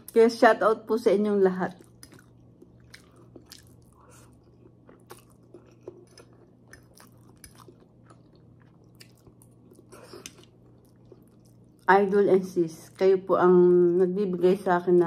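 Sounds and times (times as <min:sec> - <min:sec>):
faint steady hum: 0:00.0 - 0:15.0
chewing and mouth clicks: 0:01.7 - 0:11.9.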